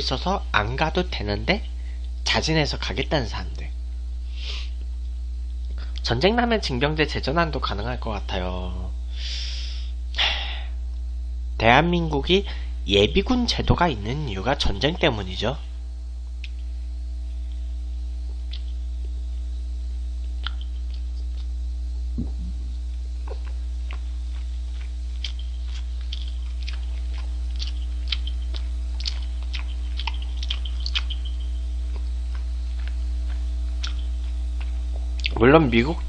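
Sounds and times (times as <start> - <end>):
steady electrical hum: 0.0 - 36.0
close chewing: 18.5 - 18.8, 20.2 - 21.6, 22.3 - 35.4.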